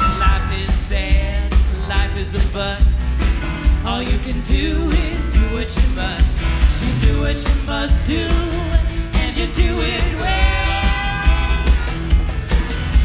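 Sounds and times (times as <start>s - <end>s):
bass beat: 0.0s - 13.0s
live band playing: 0.0s - 13.0s
woman singing: 3.8s - 11.3s.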